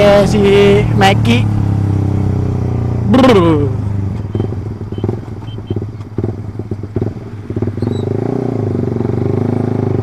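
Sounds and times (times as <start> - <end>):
motorcycle engine decelerating: 0.0 - 10.0
exhaust crackling and popping: 4.1 - 7.9.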